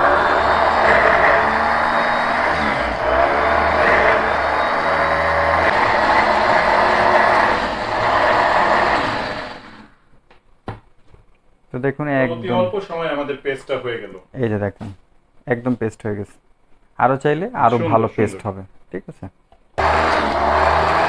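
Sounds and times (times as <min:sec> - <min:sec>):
electric chopper grinding onions: 0:00.0 - 0:10.0, 0:19.8 - 0:21.0.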